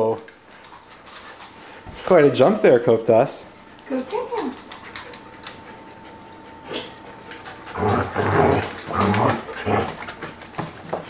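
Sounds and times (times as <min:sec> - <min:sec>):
dog growling: 0:05.9 - 0:10.2.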